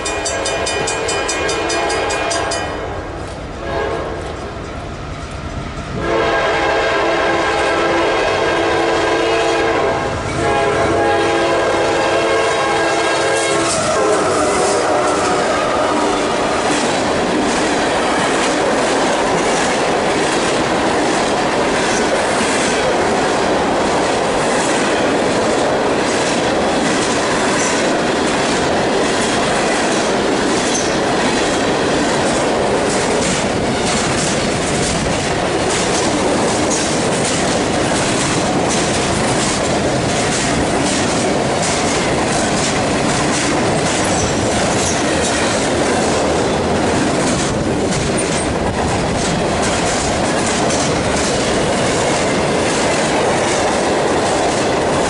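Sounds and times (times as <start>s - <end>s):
rumble of train wheels on rail: 0.0s - 55.0s
clicks of wheels on rail joints: 13.0s - 55.0s.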